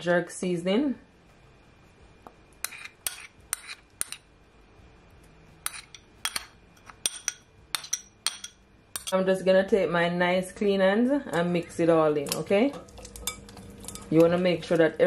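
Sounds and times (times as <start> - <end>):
spoon clinking on glass bowl: 5.7 - 9.2.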